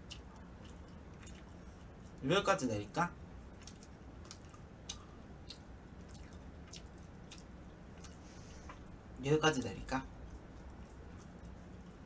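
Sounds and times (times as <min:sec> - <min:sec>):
chewing mouth clicks: 0:00.0 - 0:02.2, 0:03.6 - 0:08.9
low steady hum: 0:00.0 - 0:12.0.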